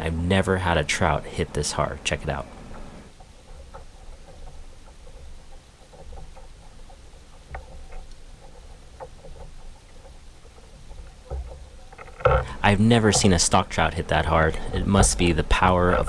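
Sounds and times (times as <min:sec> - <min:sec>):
light clicks and taps: 0:01.6 - 0:16.0
steady low rumble: 0:12.2 - 0:16.0.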